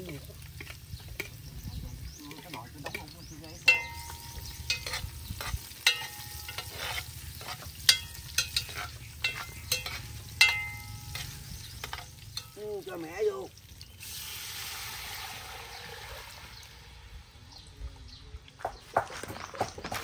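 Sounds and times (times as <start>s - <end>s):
metal utensil scraping in pot: 2.3s - 12.6s
ringing metal clanks: 3.6s - 12.6s.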